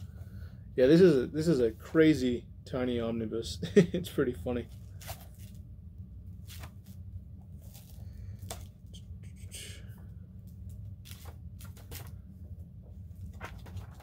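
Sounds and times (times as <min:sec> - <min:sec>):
steady low hum: 0:00.0 - 0:14.0
pages flipping and rustling: 0:04.7 - 0:05.6, 0:06.4 - 0:08.9, 0:10.4 - 0:14.0.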